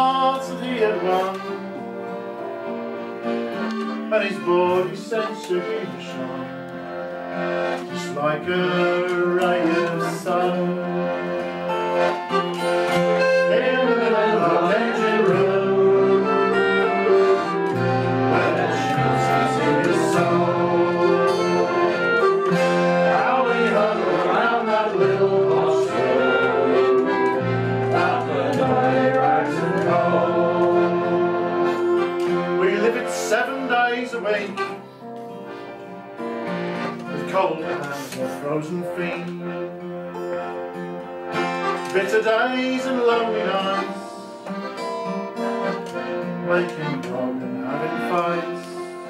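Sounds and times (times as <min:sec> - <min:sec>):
acoustic folk instrumental: 0:00.0 - 0:49.0
long held melody notes: 0:00.0 - 0:49.0
bass notes: 0:11.0 - 0:32.8.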